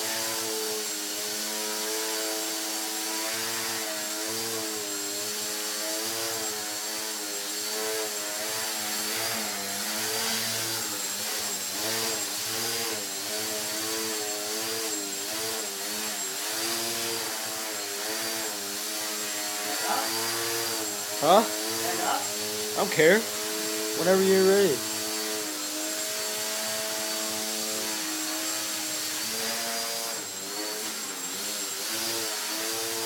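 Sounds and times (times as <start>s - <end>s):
electric motor and propeller buzzing: 0.0s - 33.0s.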